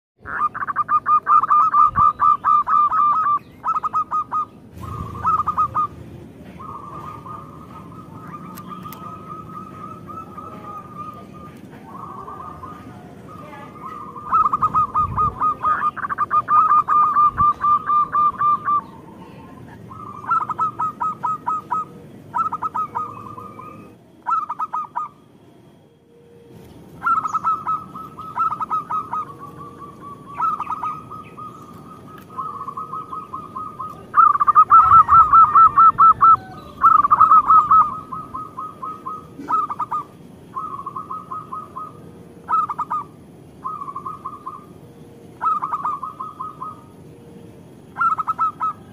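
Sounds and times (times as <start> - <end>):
dove cooing: 0.2 - 25.2, 26.2 - 48.9.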